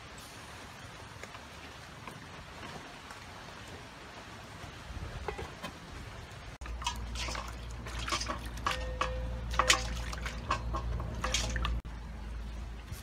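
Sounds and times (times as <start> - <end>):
water splashing in a bowl: 6.6 - 11.9.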